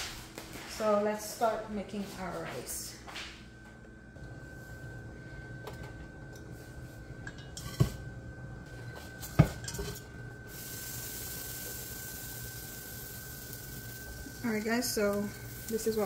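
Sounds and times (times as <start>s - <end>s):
pots and utensils clattering: 7.2s - 8.1s, 9.0s - 10.2s
steady hiss: 10.4s - 16.0s.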